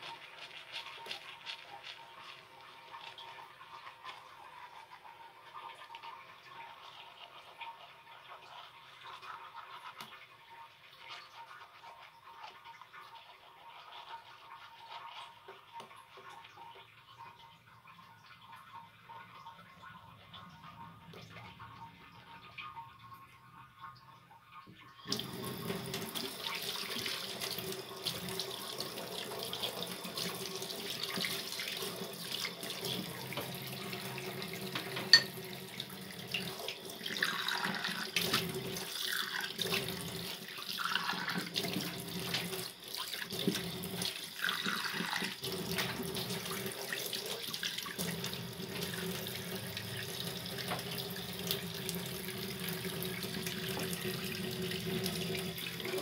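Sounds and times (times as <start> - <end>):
tap water running into sink: 24.6 - 56.0.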